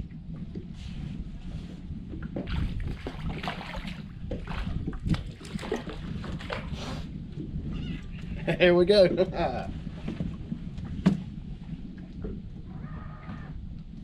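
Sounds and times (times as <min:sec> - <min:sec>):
water slapping boat hull: 0:00.0 - 0:14.0
wind on microphone: 0:00.0 - 0:14.0
knocks and splashes: 0:02.1 - 0:06.8, 0:09.7 - 0:12.7.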